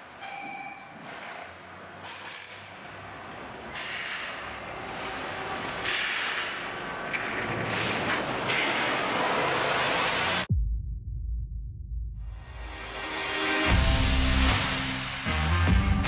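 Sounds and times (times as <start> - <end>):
factory machinery clicking: 0.0 - 9.8.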